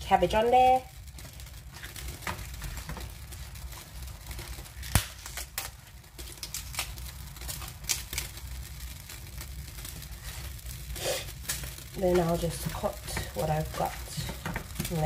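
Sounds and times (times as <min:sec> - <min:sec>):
cabbage leaves crinkling and tearing: 0:01.0 - 0:15.0
cabbage stalk snapping: 0:04.8 - 0:05.7.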